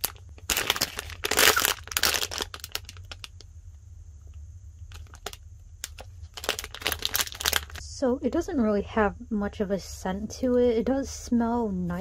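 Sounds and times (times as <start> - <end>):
plastic bag crinkling: 0.0 - 3.4, 4.9 - 7.8.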